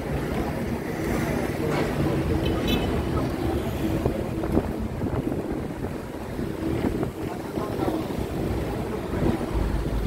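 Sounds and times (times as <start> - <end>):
tram rumbling on tracks: 0.0 - 10.0
wind buffeting microphone: 3.2 - 10.0.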